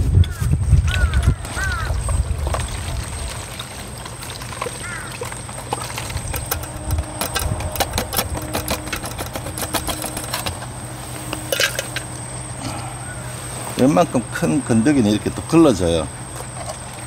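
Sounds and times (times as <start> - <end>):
splashing gurgling clicks: 0.9 - 10.8
wastewater pouring into a bottle: 1.5 - 10.5.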